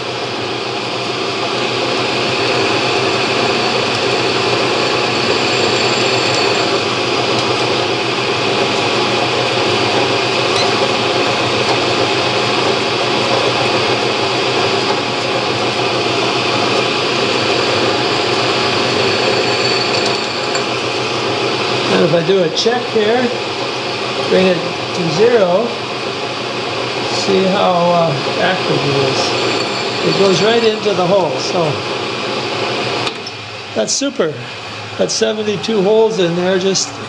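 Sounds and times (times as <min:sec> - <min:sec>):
drill press running: 0:01.6 - 0:07.9, 0:14.3 - 0:21.8, 0:28.2 - 0:31.4.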